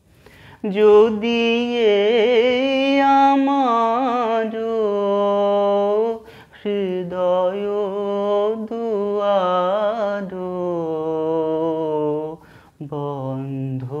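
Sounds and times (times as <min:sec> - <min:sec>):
man breathing in: 0:00.0 - 0:00.6, 0:06.2 - 0:06.6, 0:12.4 - 0:12.8
man singing unaccompanied: 0:00.6 - 0:14.0.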